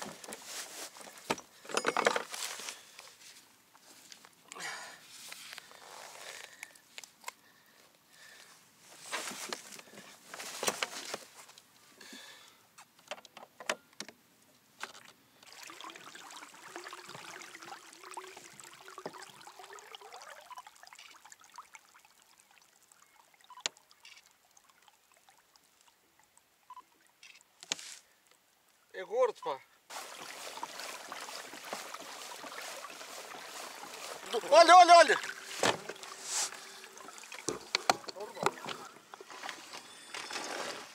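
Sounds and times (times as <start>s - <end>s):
water splashing and trickling: 14.9s - 27.4s, 29.9s - 40.9s.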